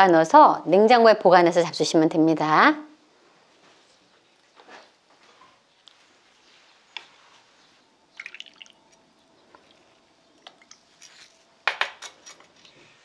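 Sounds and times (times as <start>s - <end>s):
broth pouring and dripping: 7.7s - 11.1s.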